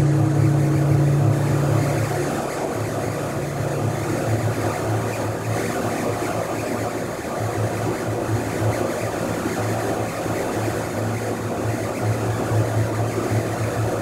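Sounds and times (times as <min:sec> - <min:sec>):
electronic music drone: 0:00.0 - 0:14.0.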